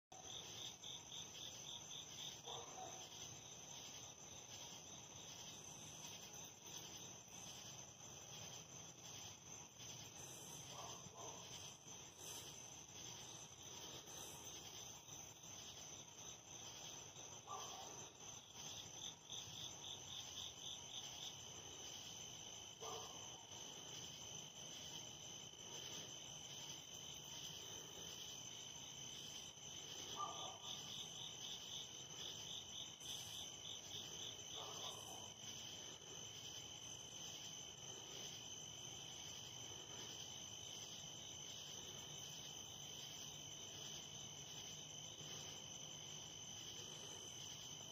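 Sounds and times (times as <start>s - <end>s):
crickets trilling: 0.2s - 47.9s
insect pulsed chirping: 23.8s - 47.9s.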